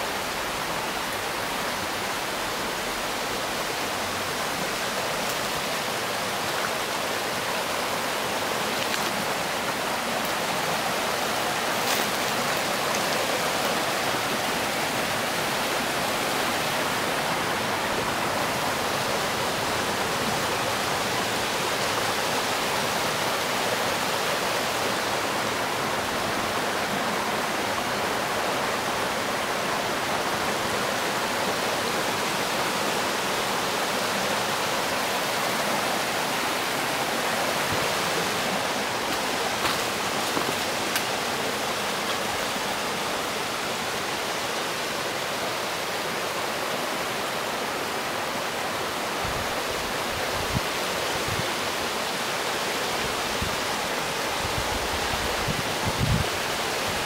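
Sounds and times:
stream rushing over boulders: 0:00.0 - 0:57.0.

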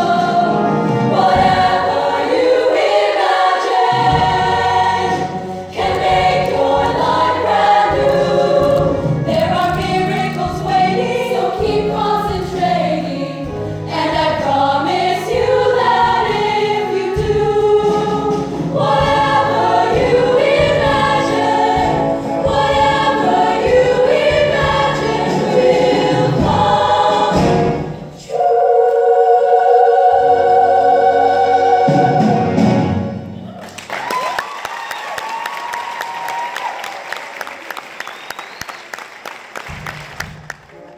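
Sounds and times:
choir singing in harmony: 0:00.0 - 0:33.5
audience applause: 0:33.5 - 0:40.9.

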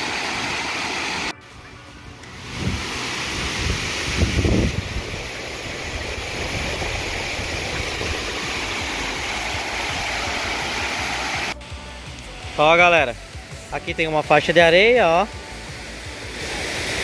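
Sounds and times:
waterfall rushing: 0:00.0 - 0:01.3, 0:02.3 - 0:11.6, 0:14.0 - 0:17.0.

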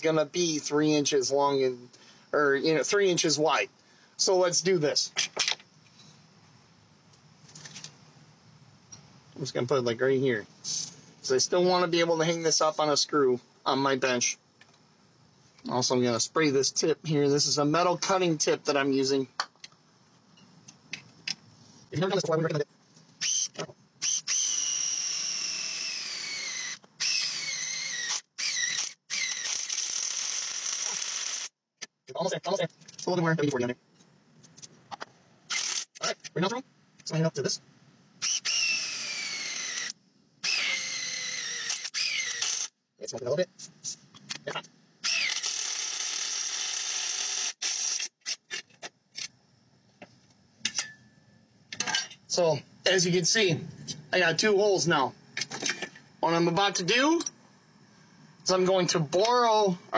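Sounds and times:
cordless drill boring into metal: 0:23.2 - 0:31.5, 0:35.5 - 0:35.9, 0:38.2 - 0:42.7, 0:45.0 - 0:48.4.

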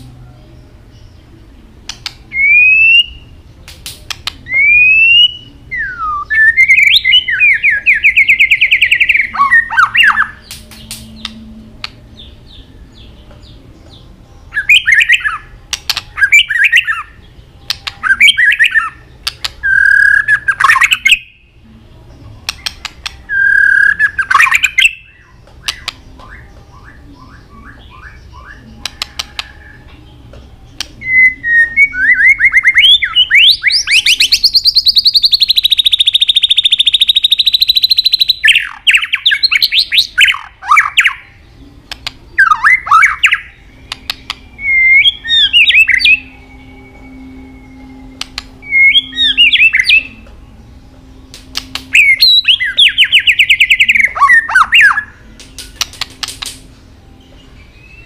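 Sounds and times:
bird sharp clicks: 0:01.8 - 0:02.2, 0:03.6 - 0:04.5, 0:10.1 - 0:12.0, 0:15.7 - 0:16.1, 0:17.7 - 0:18.1, 0:19.2 - 0:19.6, 0:22.4 - 0:23.2, 0:25.5 - 0:26.4, 0:28.8 - 0:29.6, 0:41.9 - 0:42.2, 0:43.2 - 0:44.4, 0:48.2 - 0:48.5, 0:51.3 - 0:52.3, 0:54.5 - 0:56.7.

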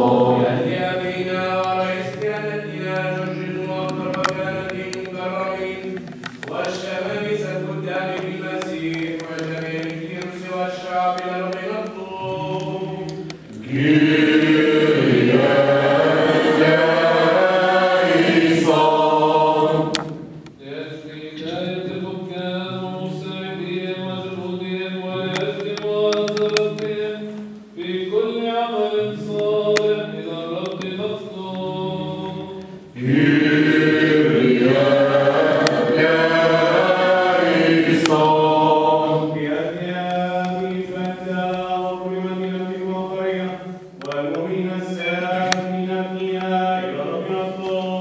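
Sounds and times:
chant sung in church: 0:00.0 - 0:48.0.

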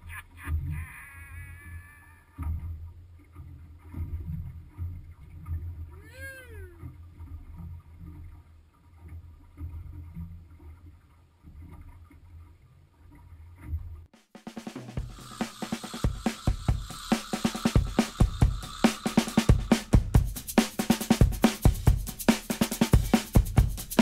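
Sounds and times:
wind and water rumble: 0:00.0 - 0:14.1.

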